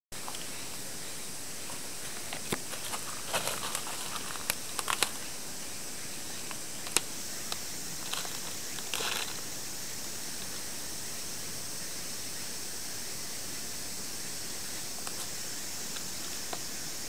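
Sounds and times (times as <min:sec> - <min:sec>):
plastic tarp crinkling under claws: 0:02.4 - 0:05.2, 0:08.0 - 0:09.4.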